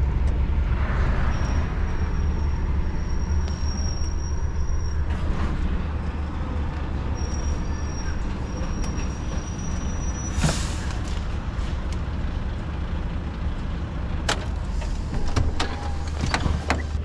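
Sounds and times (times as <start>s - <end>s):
air brake hiss: 10.2s - 11.0s.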